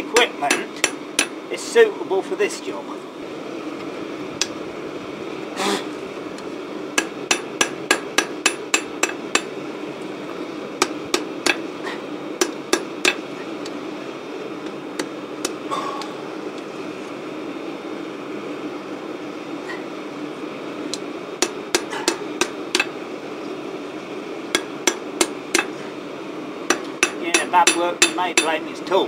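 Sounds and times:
steady background hum: 0.0 - 29.0
hammer striking steel: 0.2 - 1.4, 7.0 - 9.5, 21.4 - 22.9, 24.5 - 25.7, 26.7 - 28.6.

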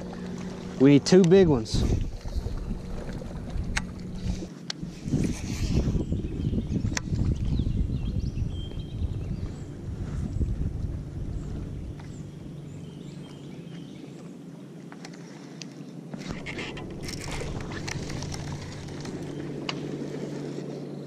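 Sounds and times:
steady low hum: 0.0 - 21.0
reel and line whirring: 14.9 - 21.0.

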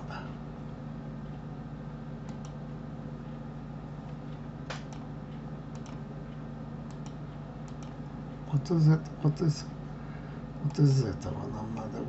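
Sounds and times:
low computer hum: 0.0 - 12.0
computer mouse clicks: 2.2 - 2.6, 4.7 - 5.1, 5.7 - 6.0, 6.9 - 8.0.

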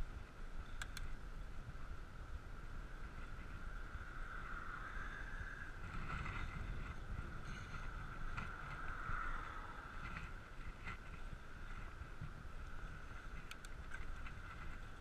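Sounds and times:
bicycle tyres rolling on road: 0.0 - 15.0
wind rumble on microphone: 0.0 - 15.0
faint ticks: 0.6 - 1.2, 10.0 - 15.0.

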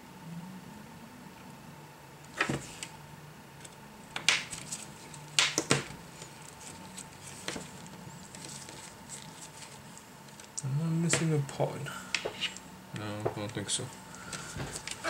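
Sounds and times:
rustling: 6.0 - 10.6.

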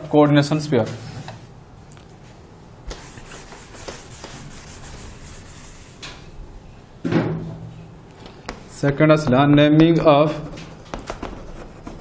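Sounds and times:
duster rubbing on chalkboard: 2.9 - 6.1, 8.3 - 9.0, 10.0 - 12.0
sharp tap: 10.6 - 11.6.

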